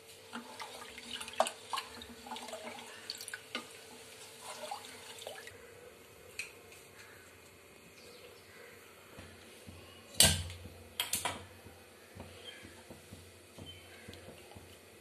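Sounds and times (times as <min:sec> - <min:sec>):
water sloshing in a pot: 0:00.2 - 0:05.7.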